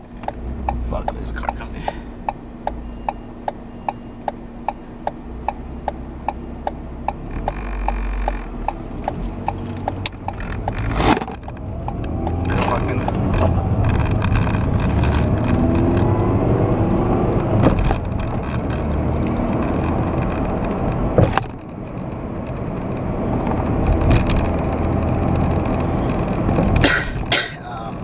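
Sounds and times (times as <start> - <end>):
car engine and road noise: 0.0 - 28.0
sharp clicks: 2.2 - 16.1.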